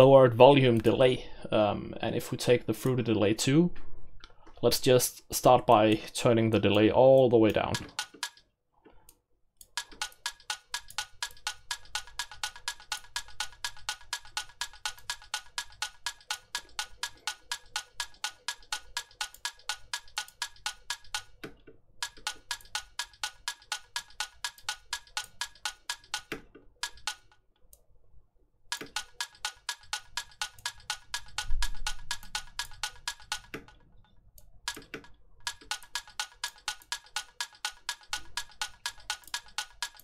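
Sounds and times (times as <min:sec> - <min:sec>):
electronic clock ticks with reverb: 0:06.6 - 0:08.4, 0:09.6 - 0:27.4, 0:28.7 - 0:33.8, 0:34.7 - 0:40.0.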